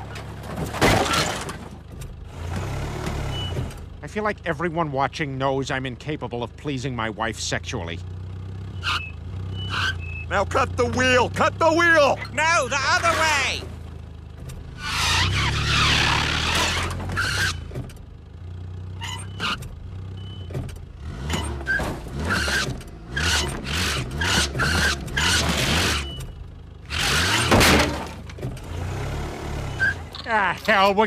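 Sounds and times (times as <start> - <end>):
car engine revving: 8.2 - 30.0
tyres squealing: 8.6 - 13.7, 14.7 - 17.9, 18.9 - 20.6, 21.2 - 27.9.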